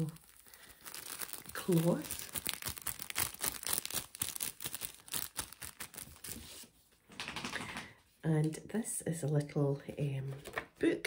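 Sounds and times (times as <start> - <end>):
cloth crinkling and rustling: 0.0 - 6.8.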